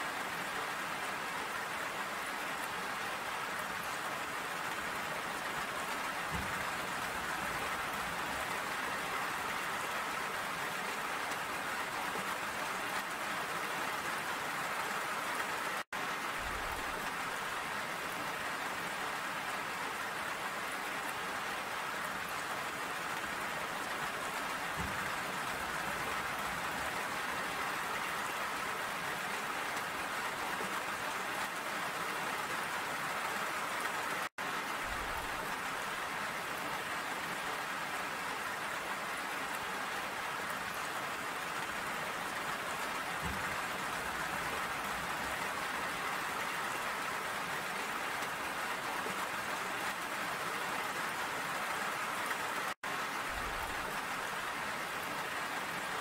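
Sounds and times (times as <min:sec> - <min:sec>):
steady rainfall: 0:00.0 - 0:56.0.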